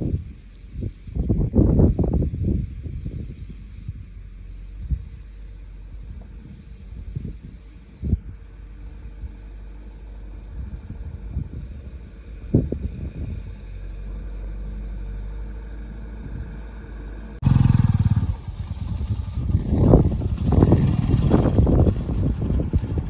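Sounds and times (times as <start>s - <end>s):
truck engine rumbling: 0.0s - 23.0s
loud close truck engine: 12.8s - 23.0s.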